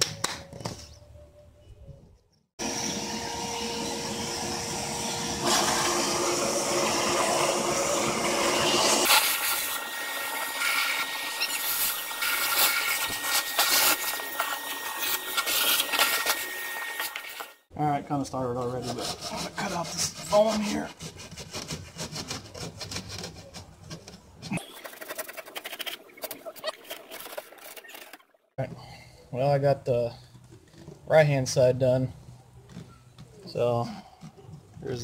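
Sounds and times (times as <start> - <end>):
vacuum cleaner running: 2.6 - 17.6.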